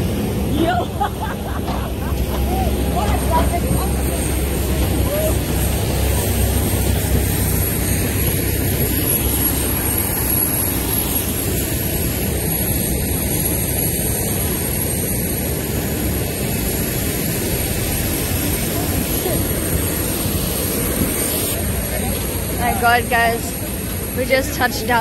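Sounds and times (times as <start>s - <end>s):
aircraft turbine engines roaring: 0.0s - 25.0s
high steady whine: 0.0s - 25.0s.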